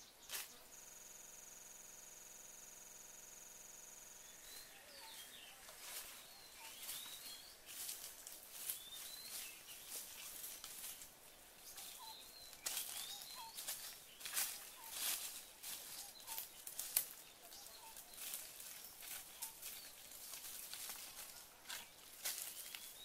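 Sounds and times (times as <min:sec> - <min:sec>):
small birds chirping: 0:00.0 - 0:01.4, 0:02.5 - 0:23.0
footsteps crunching through dry leaves: 0:04.5 - 0:23.0
brushing past twigs: 0:04.9 - 0:23.0.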